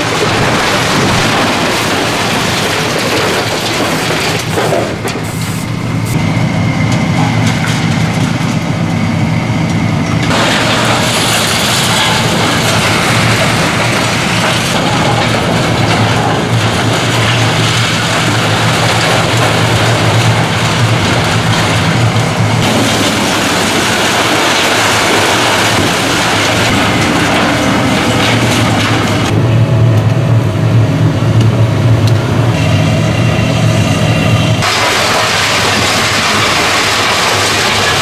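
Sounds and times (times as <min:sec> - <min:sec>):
debris crashing and scraping: 0:00.0 - 0:05.5, 0:10.2 - 0:29.4, 0:34.6 - 0:38.0
excavator diesel engine: 0:00.0 - 0:38.0.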